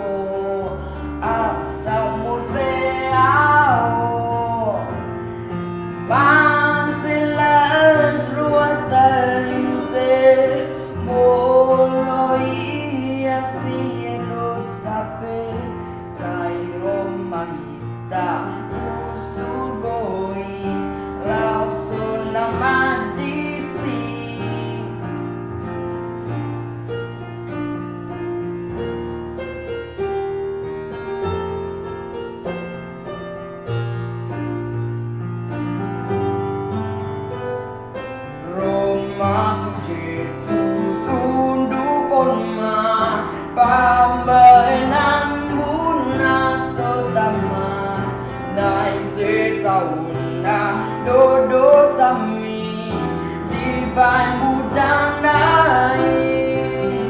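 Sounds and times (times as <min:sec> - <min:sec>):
boy singing: 0:00.0 - 0:04.9, 0:06.1 - 0:25.2, 0:38.4 - 0:57.0
piano accompaniment: 0:00.0 - 0:57.0.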